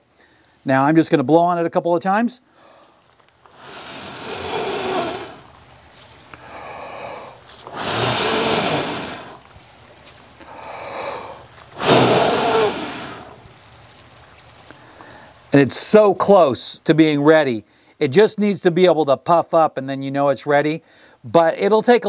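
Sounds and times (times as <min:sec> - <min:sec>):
man blowing on charcoal: 0:02.6 - 0:15.5.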